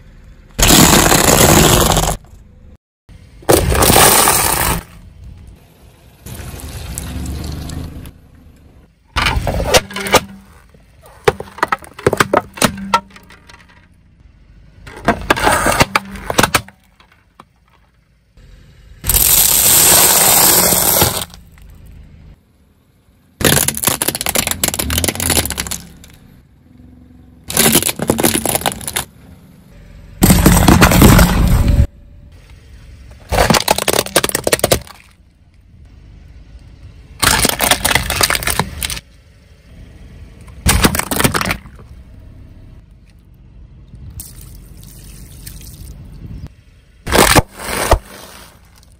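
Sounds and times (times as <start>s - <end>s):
car tyre crushing objects: 0.6s - 2.6s, 3.4s - 5.5s, 8.8s - 18.3s, 19.0s - 21.9s, 23.3s - 26.4s, 27.4s - 29.6s, 30.2s - 35.9s, 36.5s - 39.7s, 40.4s - 43.2s, 44.1s - 48.9s.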